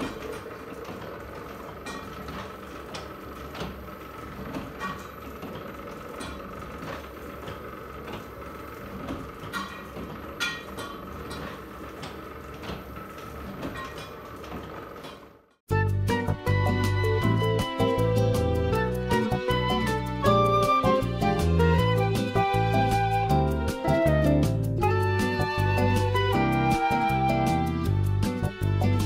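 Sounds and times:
printing press humming: 0.0s - 15.5s
press clicks and clacks: 0.0s - 15.6s.

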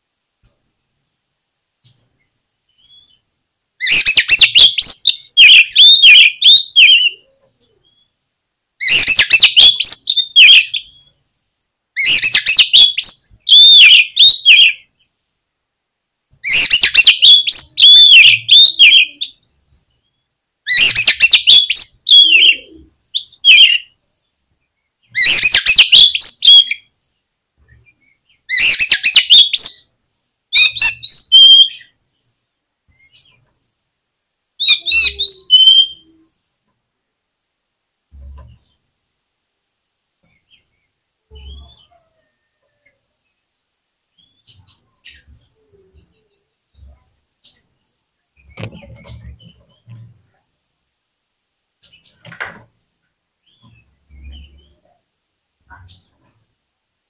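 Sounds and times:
bird singing whistles and chatter: 3.8s - 7.8s, 12.0s - 14.8s, 16.5s - 19.5s, 20.7s - 23.9s, 34.6s - 36.1s.

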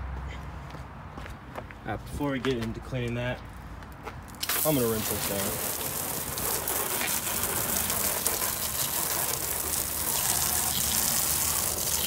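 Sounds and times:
water splashing on pavement: 4.3s - 12.0s
hose spray hissing: 4.4s - 12.0s.

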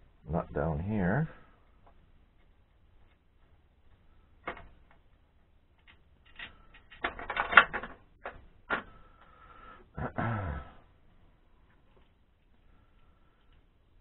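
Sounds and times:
metal clicks: 3.9s - 9.3s
metal rattling clatter: 5.8s - 8.9s.

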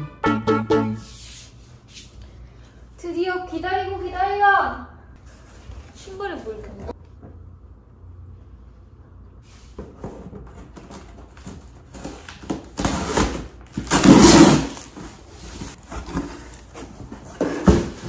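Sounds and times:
cardboard scraping and rustling: 9.9s - 18.0s.

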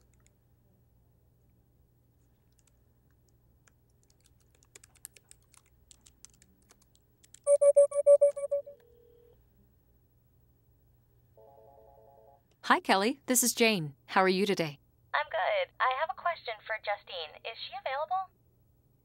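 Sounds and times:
computer keyboard typing: 2.5s - 2.8s, 3.6s - 8.5s
warbling electronic telephone ring: 7.5s - 9.3s.

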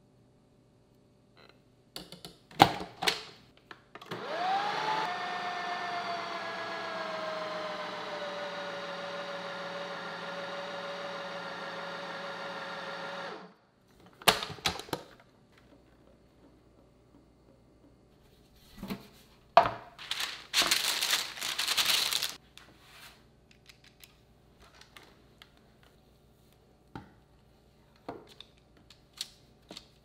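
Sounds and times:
food processor motor whine: 4.0s - 13.6s.

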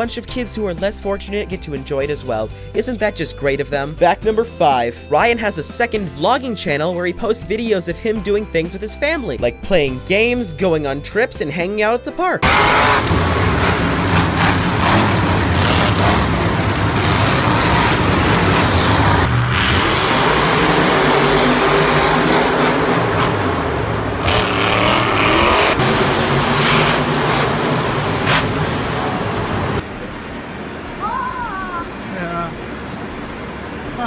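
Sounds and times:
truck engines revving: 12.4s - 31.0s.

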